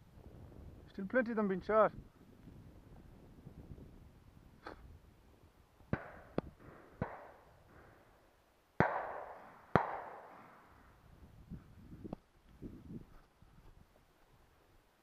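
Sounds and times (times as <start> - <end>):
shotgun shots echoing: 5.9 - 8.0, 8.8 - 10.6.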